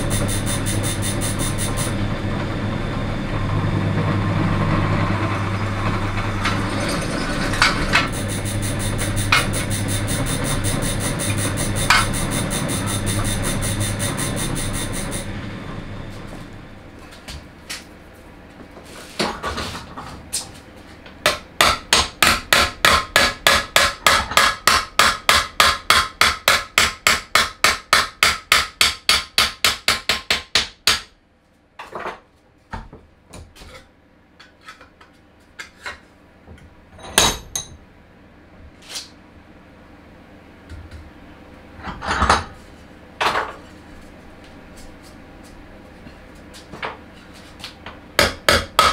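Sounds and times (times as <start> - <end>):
hammer striking metal sheet: 0.0 - 2.0, 7.6 - 15.3.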